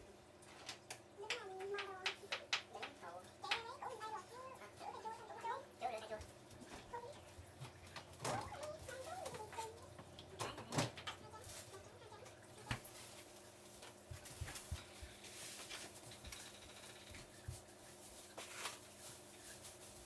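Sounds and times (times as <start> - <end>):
faint steady hum: 0.0 - 20.0
dishes clattering on a table: 10.4 - 11.2.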